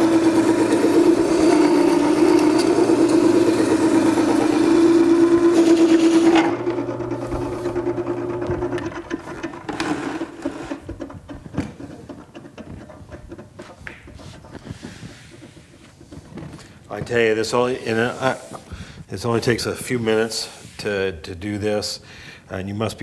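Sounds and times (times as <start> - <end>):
knife grinding on wet stone wheel: 0.0 - 16.8.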